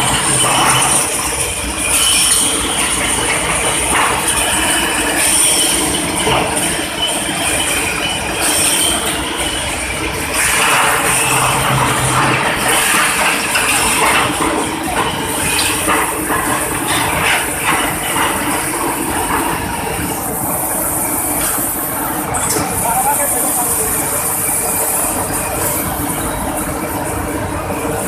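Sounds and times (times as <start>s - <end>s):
rolling mill machinery noise: 0.0s - 28.0s
metallic clanks and rattles: 10.4s - 19.8s.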